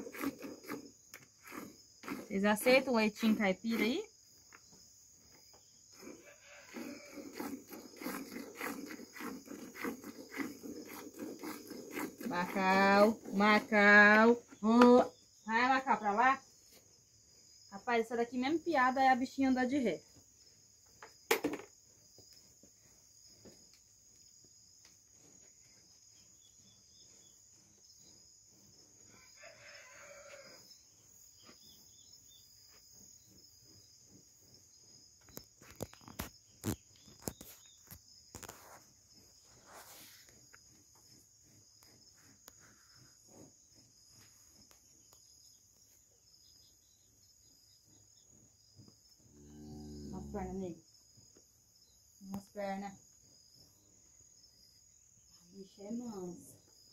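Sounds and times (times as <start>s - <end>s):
crickets chirring: 0.0s - 56.9s
rooster crowing: 6.2s - 7.3s, 29.1s - 30.7s.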